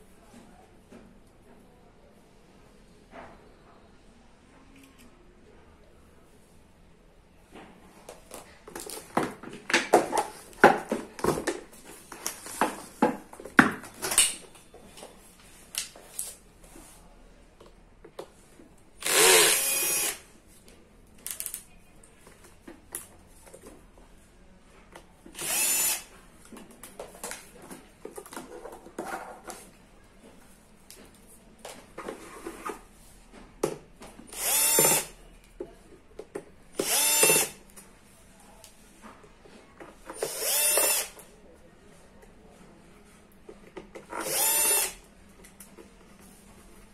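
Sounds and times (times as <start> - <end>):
cordless drill running: 19.0 - 20.2, 25.4 - 26.1, 34.3 - 35.1, 36.8 - 37.6, 40.2 - 41.1, 44.2 - 45.0.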